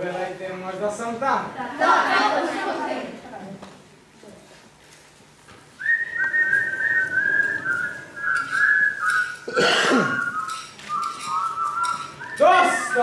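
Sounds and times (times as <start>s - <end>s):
person whistling a tune: 5.8s - 13.0s.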